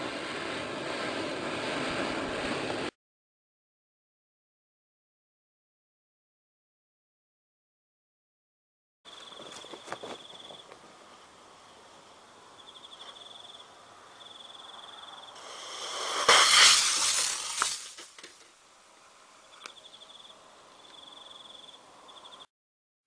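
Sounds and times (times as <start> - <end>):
crickets chirping: 9.1 - 17.8, 19.0 - 22.5
small rocket motor burning: 15.4 - 18.5.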